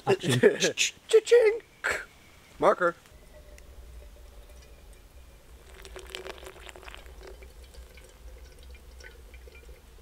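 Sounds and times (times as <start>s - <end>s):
water pouring in thin stream: 4.4s - 10.0s.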